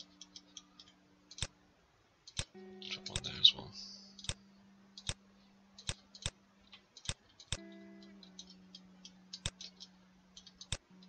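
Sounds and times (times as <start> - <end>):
faint background music: 0.0 - 11.0
mouse and keyboard clicks: 5.0 - 5.2, 5.8 - 10.8.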